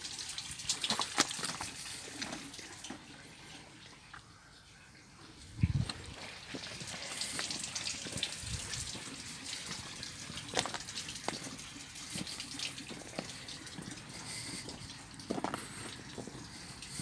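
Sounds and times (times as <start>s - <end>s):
footsteps on gravel: 10.5s - 17.0s.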